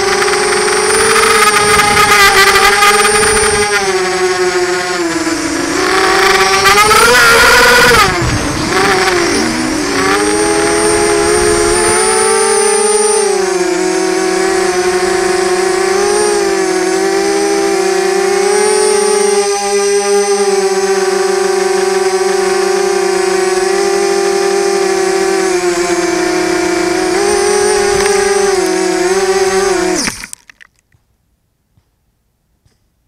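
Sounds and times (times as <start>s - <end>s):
quadcopter propellers whining: 0.0s - 30.7s.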